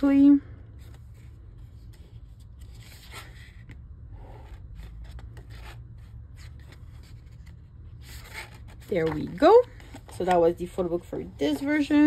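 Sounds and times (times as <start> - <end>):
pages being turned: 0.8 - 10.4.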